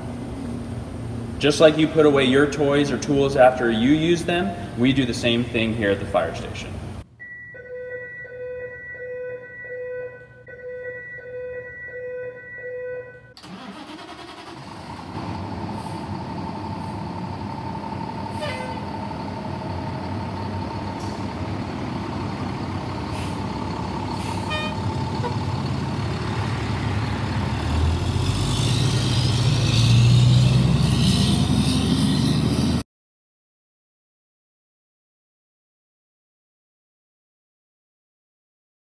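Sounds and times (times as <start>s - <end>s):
diesel engine running: 13.4s - 32.8s.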